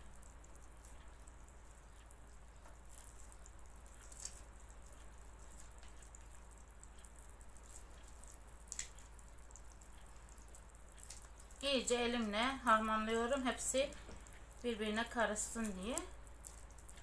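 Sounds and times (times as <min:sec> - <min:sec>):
hand kneading wet dough: 0:00.0 - 0:17.0
sticky dough smacks: 0:07.7 - 0:09.2.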